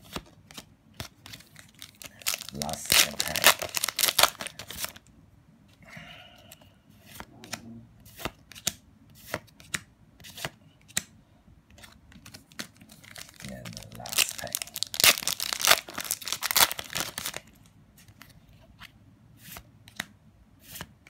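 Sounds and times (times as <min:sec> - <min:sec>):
foil pack crinkling and tearing: 0:01.4 - 0:05.0, 0:12.8 - 0:17.5
cards sliding with soft snaps: 0:18.0 - 0:21.0.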